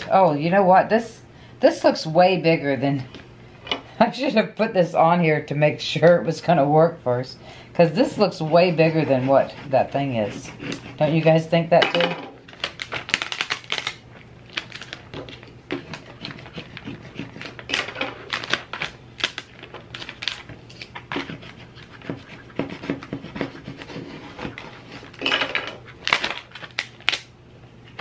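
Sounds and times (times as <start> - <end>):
transfer tape crackling: 12.4 - 22.0.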